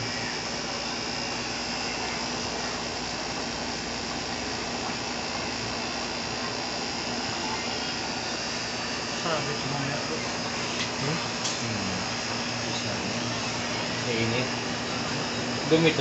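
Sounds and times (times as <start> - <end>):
air conditioner whirring hum: 0.0 - 16.0.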